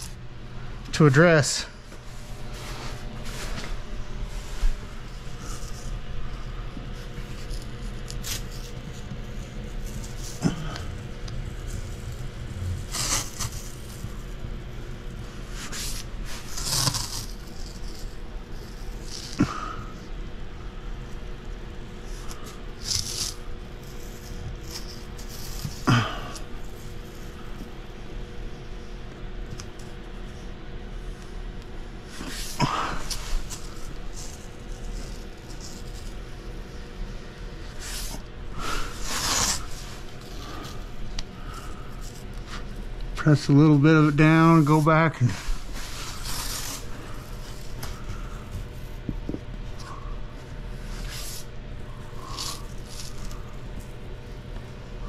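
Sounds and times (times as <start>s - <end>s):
steady low hum: 0.0s - 55.0s
masking tape ripping off roll: 7.3s - 14.3s, 15.6s - 19.8s, 22.3s - 26.8s.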